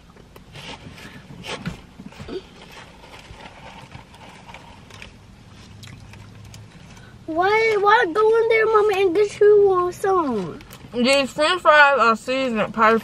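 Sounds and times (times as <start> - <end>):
chewing and lip smacks: 5.7 - 6.7.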